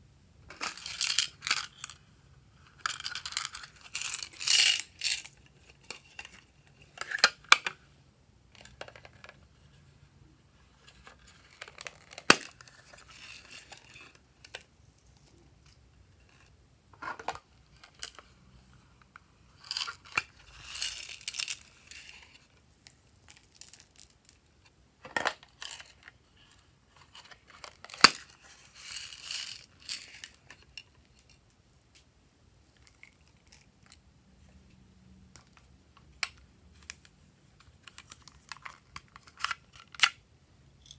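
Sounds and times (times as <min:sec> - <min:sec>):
sequins rustling and rattling: 0:00.5 - 0:02.0, 0:02.6 - 0:07.4, 0:10.8 - 0:18.4, 0:19.6 - 0:24.4, 0:25.4 - 0:31.4.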